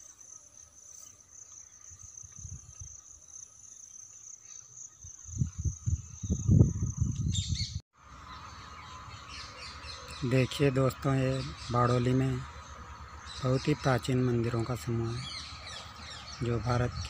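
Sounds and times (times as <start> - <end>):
insects trilling: 0.0 - 7.2
low rumbling on microphone: 5.3 - 7.8.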